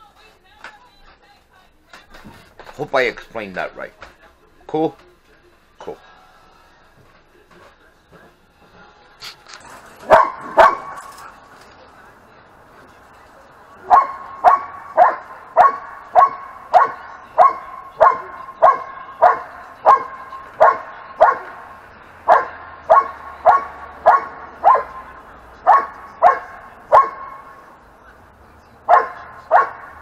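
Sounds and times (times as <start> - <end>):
dog barking: 10.0 - 11.2, 13.8 - 27.6, 28.8 - 30.0.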